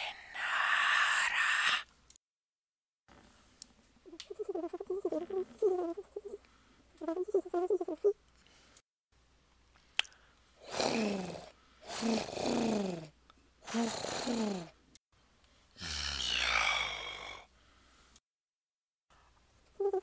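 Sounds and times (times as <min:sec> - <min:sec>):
man imitating pigeon coos: 0:04.1 - 0:06.4, 0:07.0 - 0:08.2, 0:19.8 - 0:20.0
man growling: 0:15.8 - 0:17.4.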